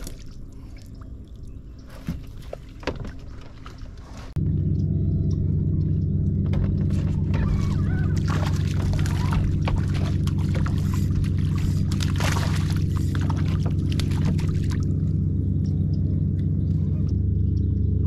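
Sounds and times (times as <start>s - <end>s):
water splashing and pouring: 0.0s - 4.4s, 6.8s - 15.1s
motor humming: 1.0s - 18.0s.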